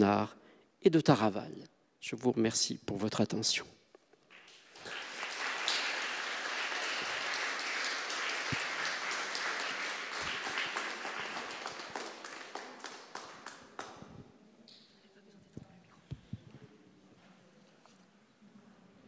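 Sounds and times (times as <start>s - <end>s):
audience applauding: 4.3s - 14.1s.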